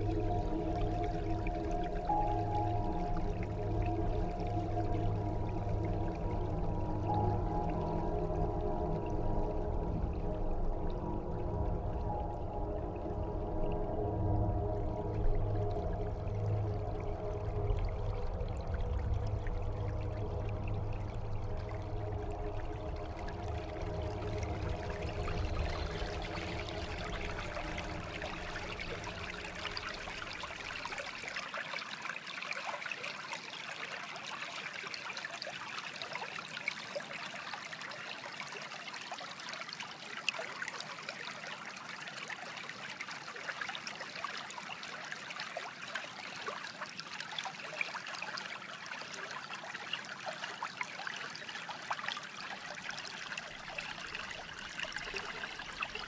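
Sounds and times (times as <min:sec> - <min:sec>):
low humming drone: 0:00.0 - 0:31.0
water trickling and bubbling: 0:00.0 - 0:56.0.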